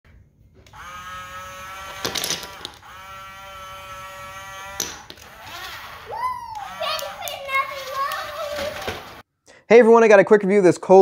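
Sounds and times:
small electric motor whining: 0:00.7 - 0:08.0
wooden toy blocks clattering: 0:06.8 - 0:09.2.

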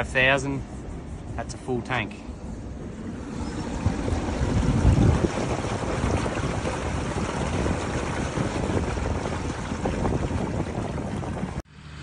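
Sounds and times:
slurry splashing into tank: 0:03.8 - 0:11.6.

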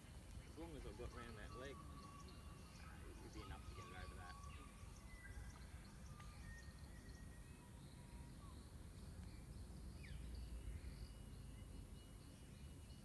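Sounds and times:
bird calls and chirps: 0:00.0 - 0:13.0.

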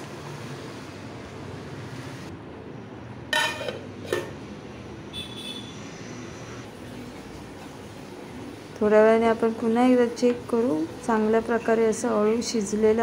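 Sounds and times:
metal lid clanking on pot: 0:03.3 - 0:04.4.

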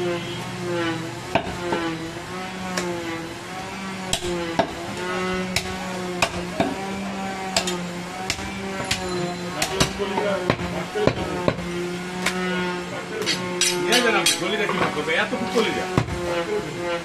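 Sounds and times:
cleaver chopping meat and bone: 0:01.3 - 0:01.9, 0:04.1 - 0:12.5, 0:15.9 - 0:16.3.

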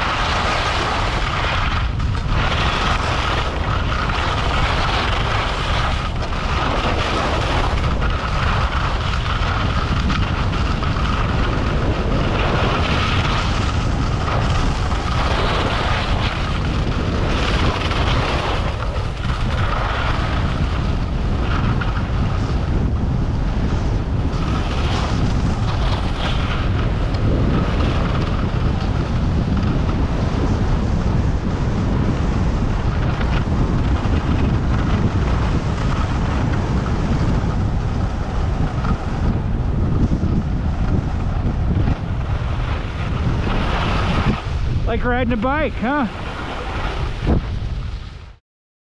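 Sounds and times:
skis sliding on snow: 0:00.0 - 0:48.2
wind rushing over microphone: 0:00.0 - 0:48.4.

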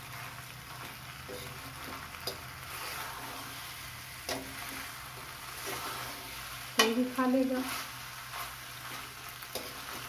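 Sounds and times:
food sizzling in a pan: 0:00.0 - 0:10.0
spatula stirring pasta: 0:00.0 - 0:10.0
spatula tapping metal pan: 0:04.3 - 0:04.6.

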